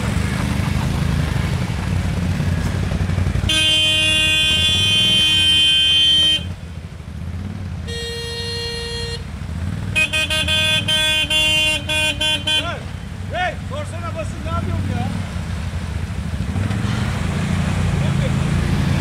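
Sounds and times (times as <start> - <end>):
atv engines running: 0.0 - 19.0
quick horn toots: 3.4 - 6.6
vehicle horn sounding: 3.4 - 6.6, 7.8 - 9.3, 9.9 - 12.8.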